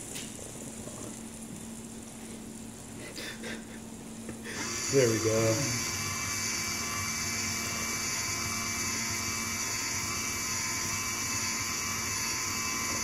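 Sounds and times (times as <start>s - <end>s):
electric motor whirring: 4.4s - 13.0s.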